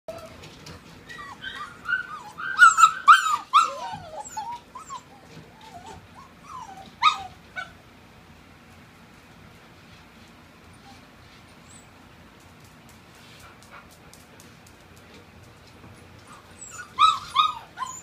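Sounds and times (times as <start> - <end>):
puppies whining and yipping: 0.1 - 7.8, 10.8 - 12.0, 16.2 - 18.0.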